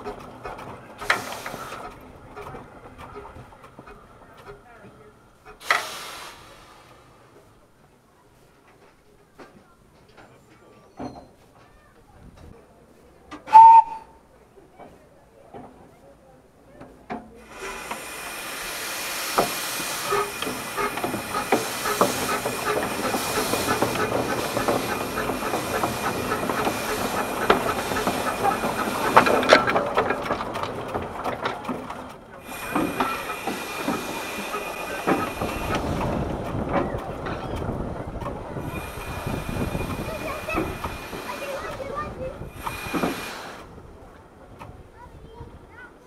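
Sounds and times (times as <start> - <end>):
steam locomotive hissing steam: 0.0 - 4.4, 5.3 - 7.6, 13.5 - 14.2, 17.3 - 44.1.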